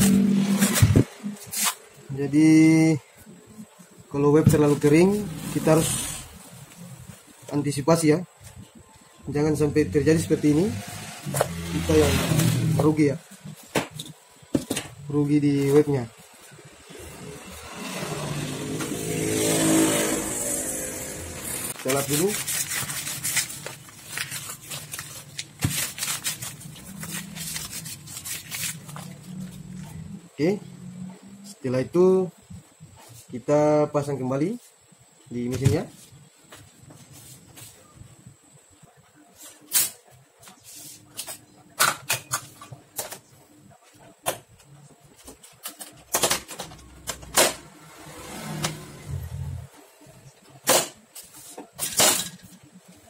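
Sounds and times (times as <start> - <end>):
paper towel rubbing and crinkling: 21.7 - 29.6.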